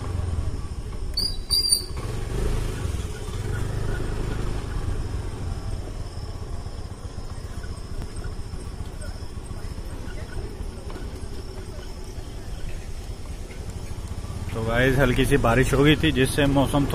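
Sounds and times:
scooter engine running: 0:00.0 - 0:16.9
short high-pitched chirps: 0:01.2 - 0:02.0.

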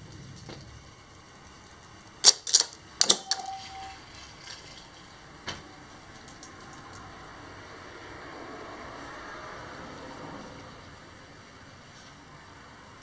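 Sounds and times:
brief high tone: 0:03.1 - 0:04.2.

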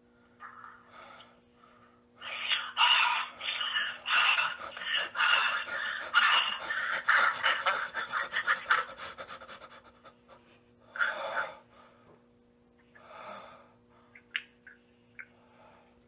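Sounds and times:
man panting heavily: 0:04.1 - 0:12.0.

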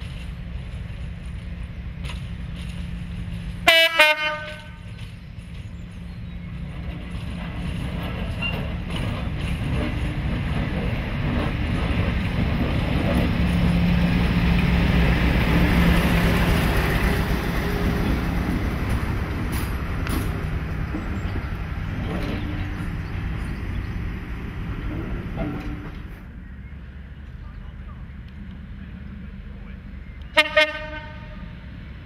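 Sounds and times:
diesel locomotive passing: 0:00.0 - 0:32.0
coach rolling past: 0:04.4 - 0:30.0.

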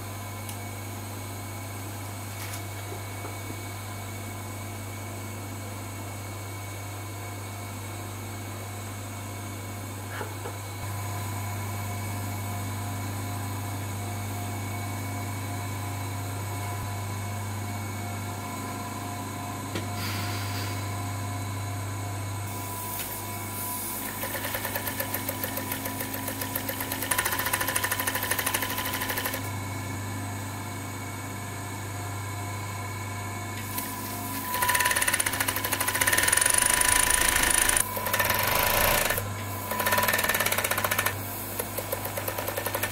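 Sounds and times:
sewing machine motor humming: 0:24.0 - 0:29.5, 0:33.8 - 0:42.9
sewing machine rapid stitching: 0:24.0 - 0:29.5, 0:34.5 - 0:42.9.

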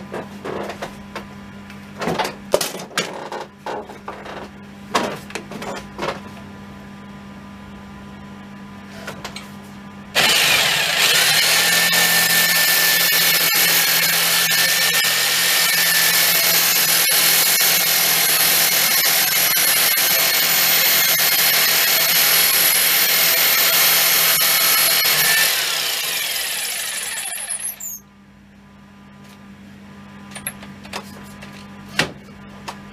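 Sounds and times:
power tool whining: 0:10.2 - 0:28.0.

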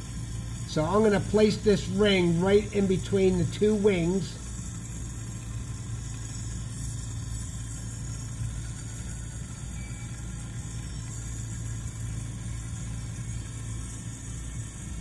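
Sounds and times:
bench torch hissing drone: 0:00.0 - 0:15.0.

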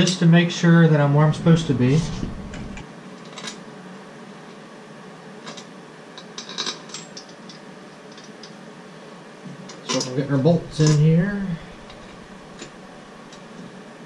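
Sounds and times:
low steady hiss: 0:00.1 - 0:02.8, 0:09.9 - 0:13.8.

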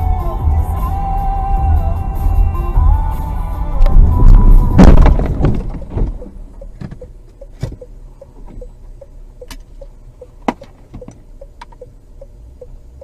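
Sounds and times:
car collision impact: 0:03.8 - 0:07.8, 0:10.4 - 0:11.2
sharp knocks: 0:04.8 - 0:06.2
light ticking: 0:05.8 - 0:13.0.

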